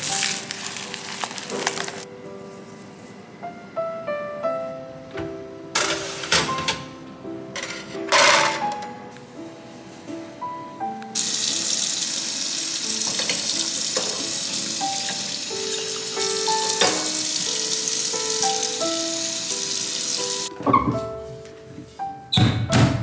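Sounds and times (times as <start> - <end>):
soft background music: 0.0 - 23.0
tap running into sink: 13.0 - 15.3.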